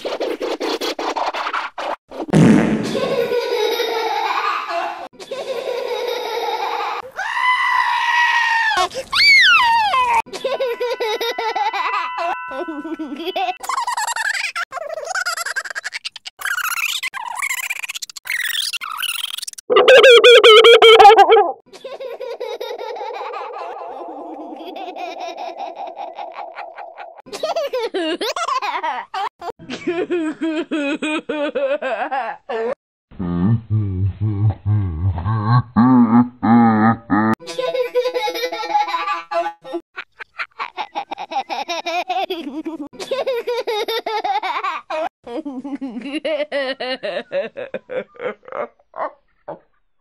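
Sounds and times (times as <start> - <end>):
altered cartoon pig laughing: 12.6 - 18.2, 19.7 - 28.9, 34.4 - 49.8
steady high tones: 19.7 - 21.6.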